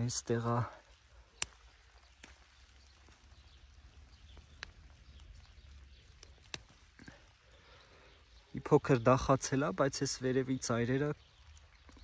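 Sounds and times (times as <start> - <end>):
faint clicks: 0.8 - 8.2
asparagus spear snapping: 1.3 - 3.3, 4.3 - 5.4, 6.1 - 7.0.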